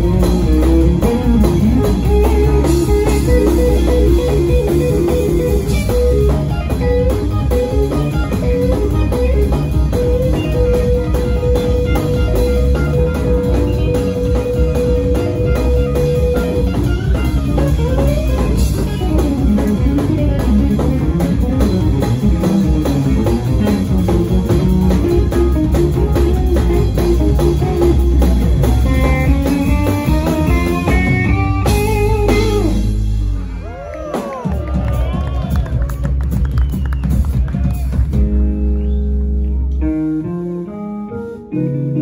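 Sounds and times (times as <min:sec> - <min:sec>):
band music led by guitar: 0:00.0 - 0:42.0.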